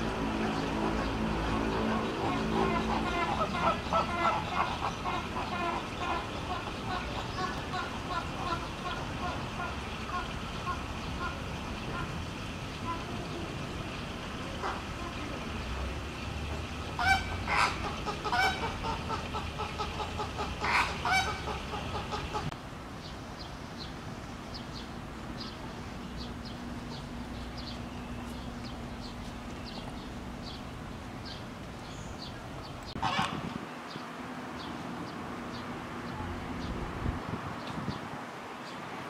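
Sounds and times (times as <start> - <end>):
loud honking animal calls: 0.5 - 9.4, 17.0 - 22.5.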